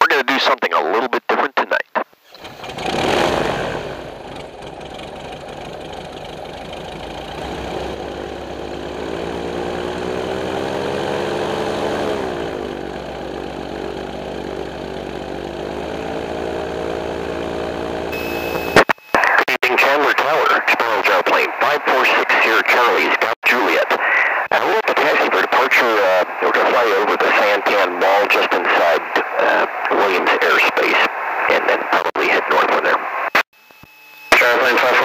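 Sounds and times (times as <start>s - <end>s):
gyroplane engine running: 2.4s - 18.8s.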